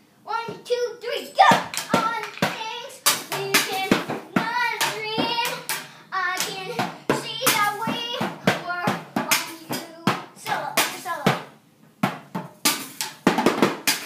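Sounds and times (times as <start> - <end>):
child singing: 0.3 - 11.5
children banging toy drums: 1.4 - 14.0.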